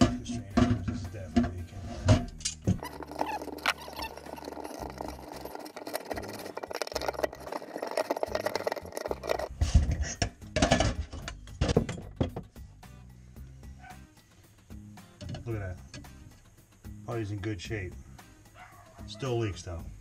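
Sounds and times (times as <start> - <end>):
metal clinking and scraping: 0.0 - 12.5, 15.2 - 16.5
metal parts knocking: 2.2 - 12.5.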